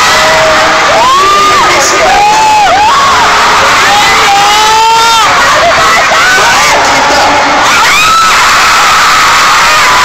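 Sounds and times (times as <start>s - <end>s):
crowd screaming and cheering: 0.0s - 10.0s
close high-pitched screams: 7.6s - 10.0s.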